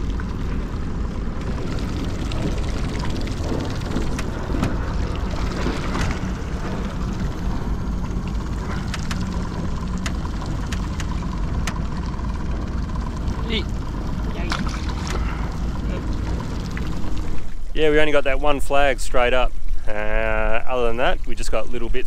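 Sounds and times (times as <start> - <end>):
water around a boat: 0.0 - 22.0
wind: 0.0 - 22.0
sharp clicks and knocks: 3.5 - 4.8, 8.7 - 12.0.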